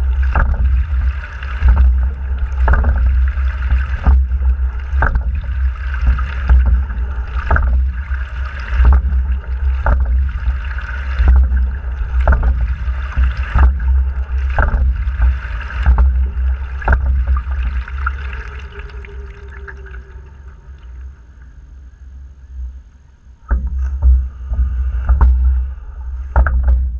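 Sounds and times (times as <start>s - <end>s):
low rumble: 0.0s - 26.9s
water rushing along hull: 0.0s - 26.9s
oars knocking in gates: 8.7s - 18.2s.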